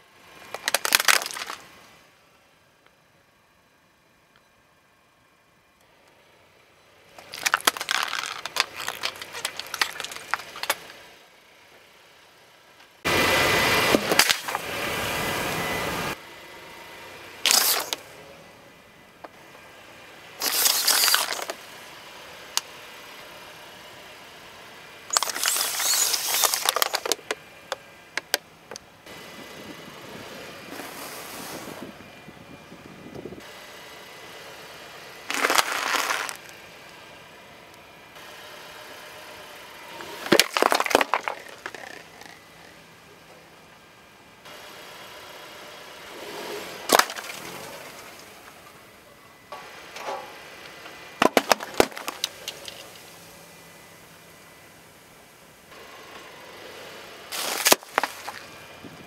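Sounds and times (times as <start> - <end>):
tyre crushing plastic: 0.5 - 1.7, 7.2 - 11.0, 14.0 - 14.6, 17.5 - 18.0, 20.4 - 21.6, 25.1 - 27.4, 35.3 - 36.5, 40.2 - 42.6, 46.8 - 48.0, 51.2 - 53.0, 57.3 - 58.5.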